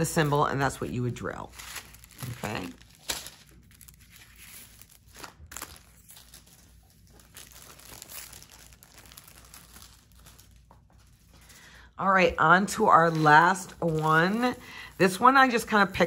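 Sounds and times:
plastic film crinkling and rustling: 0:00.0 - 0:16.0.

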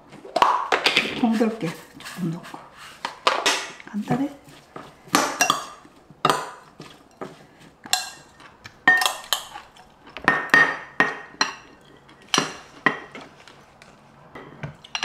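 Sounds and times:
metal spoon clinking on glass bowl: 0:05.4 - 0:07.2, 0:07.9 - 0:12.6.

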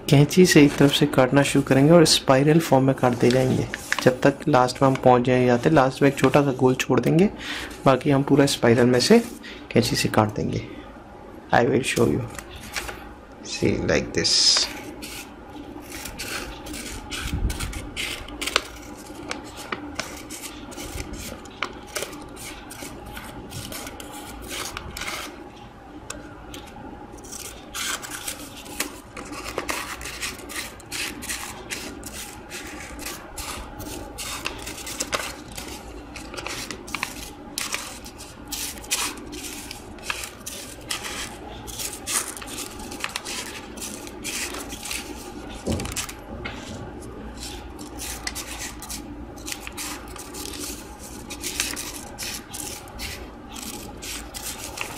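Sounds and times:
paper rustling: 0:00.4 - 0:01.9, 0:03.0 - 0:06.5, 0:14.6 - 0:25.4, 0:27.2 - 0:54.9
scissors snipping paper: 0:14.6 - 0:25.3, 0:27.2 - 0:46.2, 0:47.4 - 0:54.9.

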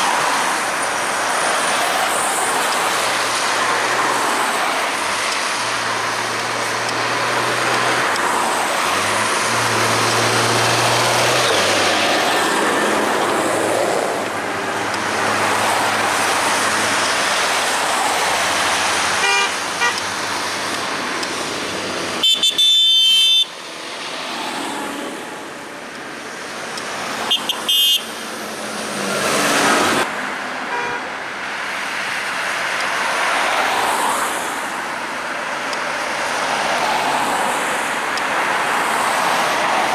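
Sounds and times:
tractors driving past: 0:00.0 - 0:22.3
vehicle horns tooting: 0:19.2 - 0:20.1, 0:22.2 - 0:23.5, 0:27.2 - 0:28.1, 0:30.7 - 0:31.1.

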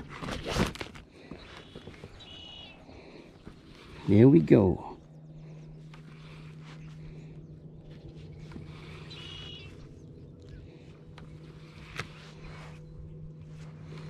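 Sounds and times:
steady low hum: 0:00.0 - 0:14.0
short bird call: 0:08.9 - 0:09.8.

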